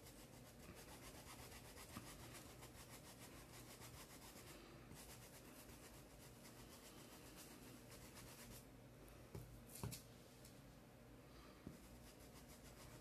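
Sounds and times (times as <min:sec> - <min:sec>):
stencil brush rubbing on fabric: 0:00.0 - 0:08.7, 0:11.7 - 0:13.0.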